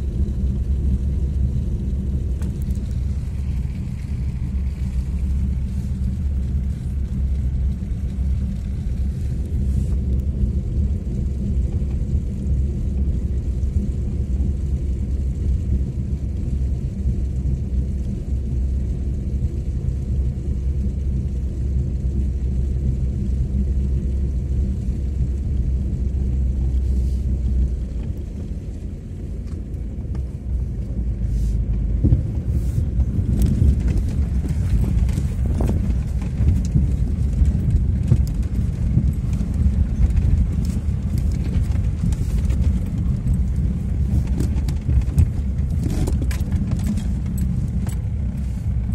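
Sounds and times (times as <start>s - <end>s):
vehicle engine rumbling: 0.0s - 48.9s
vehicle knocks and rattles: 31.7s - 48.9s.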